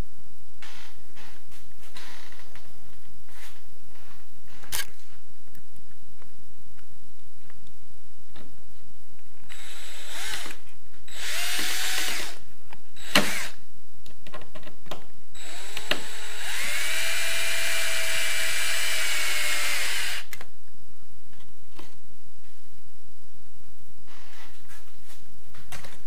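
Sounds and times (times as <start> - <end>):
cordless drill whirring: 9.5 - 12.4, 13.0 - 13.6, 15.4 - 20.4.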